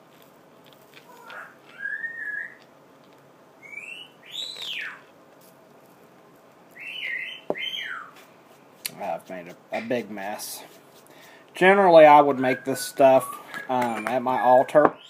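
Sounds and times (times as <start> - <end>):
sliding whistled notes: 12.4 - 14.8.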